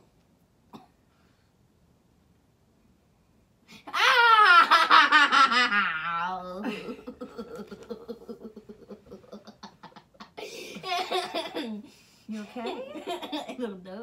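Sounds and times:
rhythmic giggling: 0:06.6 - 0:11.8.

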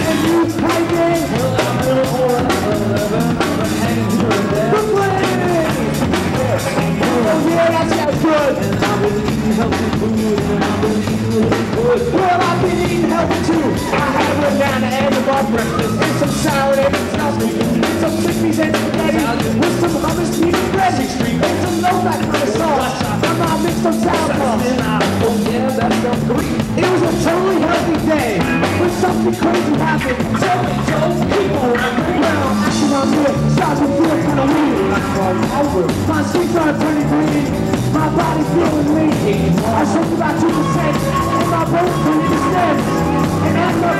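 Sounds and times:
live rock band playing: 0:00.0 - 0:43.9
person singing: 0:00.0 - 0:43.9.

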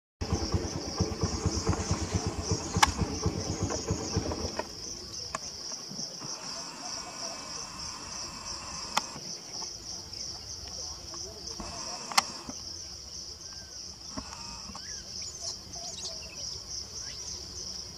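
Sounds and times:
low rapid throbbing: 0:00.2 - 0:04.9
high-pitched insect chorus: 0:00.2 - 0:17.9
sharp clicks: 0:01.0 - 0:05.5, 0:06.2 - 0:09.3, 0:11.1 - 0:12.6, 0:14.1 - 0:14.9.

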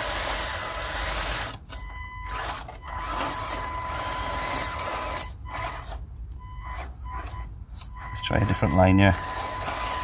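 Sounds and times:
electric motor and gearbox whining: 0:00.0 - 0:10.0.

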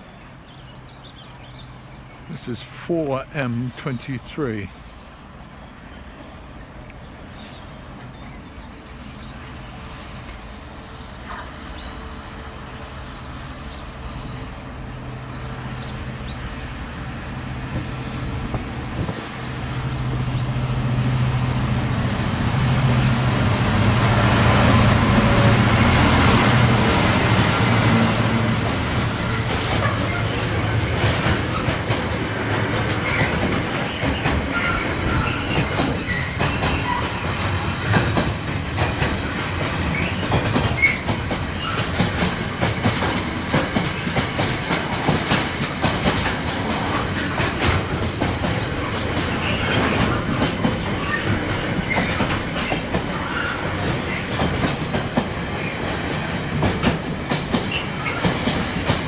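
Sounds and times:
birds chirping: 0:00.0 - 0:42.6, 0:43.2 - 0:59.0
diesel locomotive engine hum: 0:00.0 - 0:59.0
train wheels clicking over rails: 0:15.0 - 0:59.0.

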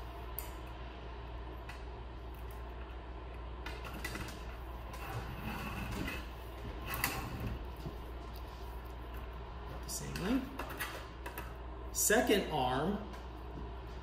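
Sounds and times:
steady low hum: 0:00.0 - 0:14.0
wire scraping: 0:03.7 - 0:09.3.

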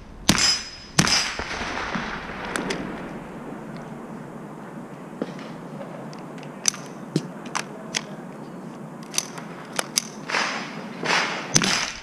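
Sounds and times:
rifle action clicking: 0:06.1 - 0:08.1, 0:09.0 - 0:10.4.

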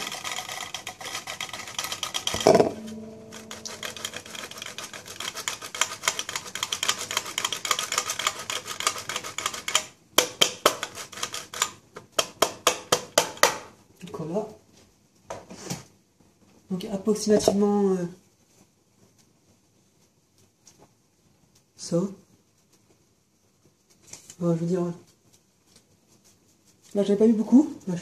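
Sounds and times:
cheese grating on metal grater: 0:00.0 - 0:11.8
ringing knock: 0:02.4 - 0:04.6.

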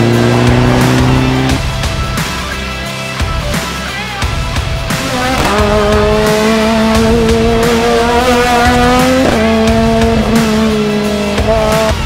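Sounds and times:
rally car engine accelerating: 0:00.0 - 0:02.8, 0:03.6 - 0:12.0.

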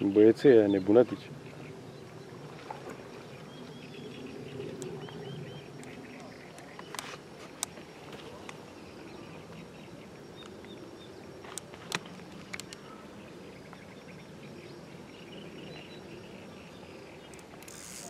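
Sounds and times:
sharp clicks: 0:17.3 - 0:18.0.

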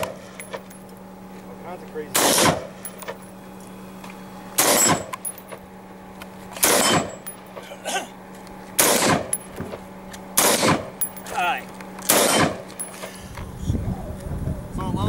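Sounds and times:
rifle shots echoing: 0:02.1 - 0:02.8, 0:04.6 - 0:05.1, 0:06.6 - 0:07.2, 0:08.8 - 0:09.3, 0:10.4 - 0:11.0, 0:12.1 - 0:12.7.

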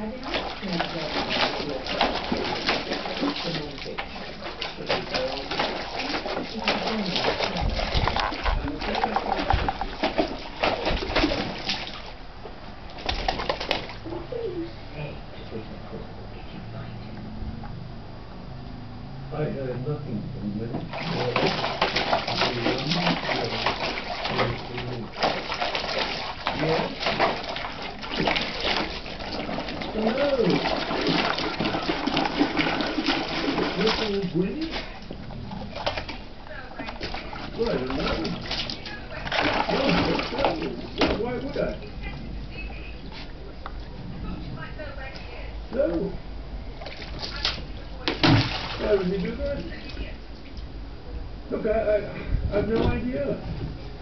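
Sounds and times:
water splashing: 0:00.0 - 0:14.4, 0:20.8 - 0:45.9, 0:46.6 - 0:50.7
plastic bucket knocking: 0:04.9 - 0:11.8, 0:39.3 - 0:41.7.

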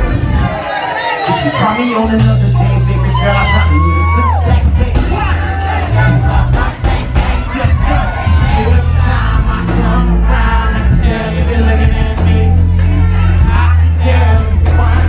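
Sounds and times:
band with keyboards: 0:00.0 - 0:15.0
heavy bass line: 0:00.0 - 0:15.0
man singing: 0:01.3 - 0:15.0.

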